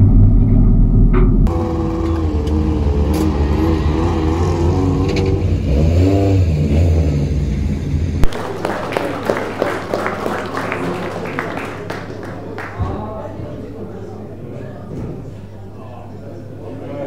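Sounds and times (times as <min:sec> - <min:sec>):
race car engine revving: 0:01.4 - 0:08.3
people clapping: 0:08.2 - 0:13.4.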